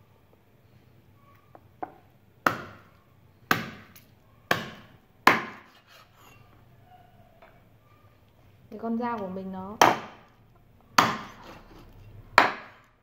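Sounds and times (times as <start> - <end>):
cleaver chopping on wooden board: 2.5 - 2.8, 3.5 - 3.9, 4.5 - 5.8, 9.8 - 10.2, 11.0 - 11.6, 12.4 - 12.8.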